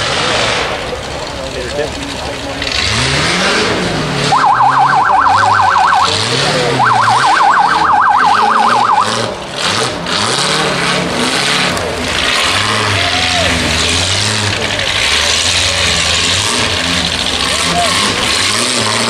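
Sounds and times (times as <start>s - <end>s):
buggy engines revving: 0.0s - 19.0s
fast warbling siren: 4.3s - 9.3s.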